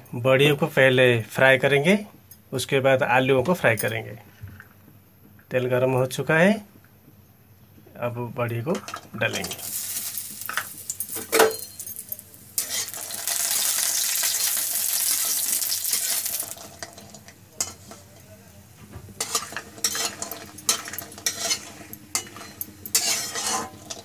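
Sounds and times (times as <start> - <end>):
dumplings sizzling in hot oil: 9.5 - 18.1, 19.1 - 24.0
metal clank: 10.5 - 13.0
metal spatula scraping pan: 12.2 - 14.5, 15.1 - 18.2, 19.2 - 24.0.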